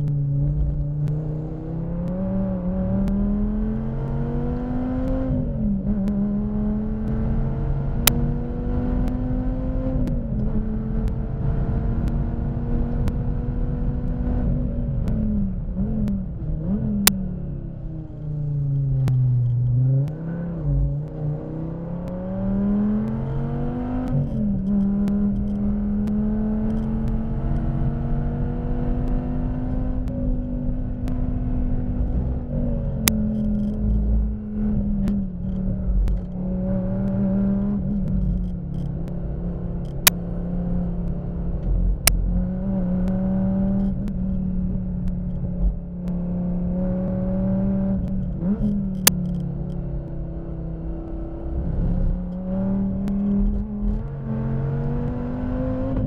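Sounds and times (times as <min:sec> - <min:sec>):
racing car engine revving: 0:00.0 - 0:56.0
sharp clicks: 0:29.9 - 0:36.4, 0:39.8 - 0:40.3, 0:48.0 - 0:50.2.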